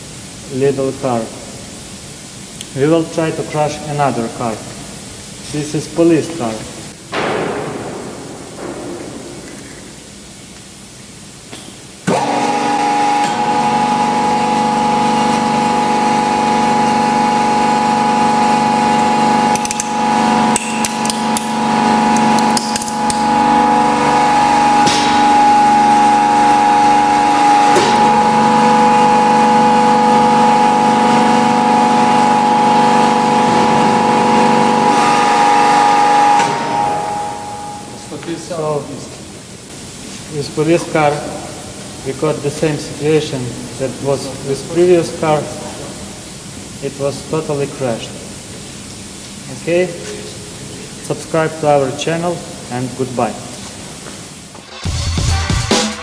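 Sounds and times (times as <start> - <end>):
hydraulic pump motor humming: 6.4 - 49.4.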